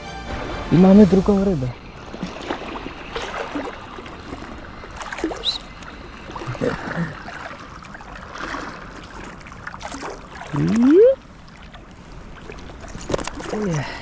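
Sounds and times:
sea water sloshing and lapping: 0:01.1 - 0:14.0
brief splashes: 0:02.0 - 0:11.8.

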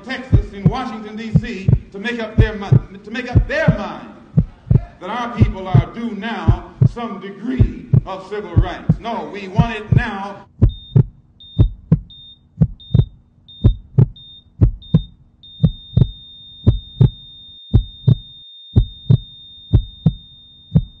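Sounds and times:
heart monitor beep: 0:00.3 - 0:03.8, 0:09.6 - 0:21.0
heartbeat double thump: 0:00.3 - 0:03.8, 0:04.4 - 0:07.0, 0:07.6 - 0:09.0, 0:09.6 - 0:21.0
flatline tone: 0:10.6 - 0:21.0.

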